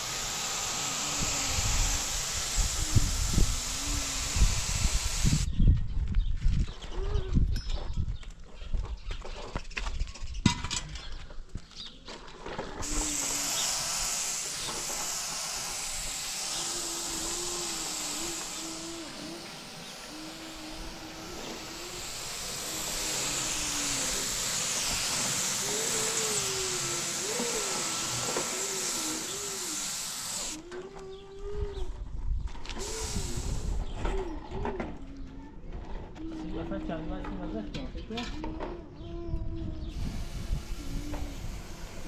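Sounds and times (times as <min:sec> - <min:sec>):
paint spray gun hissing: 0:00.0 - 0:05.5, 0:12.8 - 0:30.6, 0:32.8 - 0:33.9, 0:39.9 - 0:42.0.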